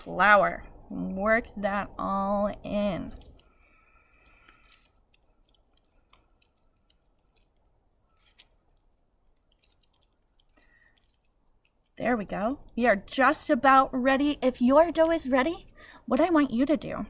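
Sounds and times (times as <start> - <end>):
hands kneading dough: 1.0 - 13.4.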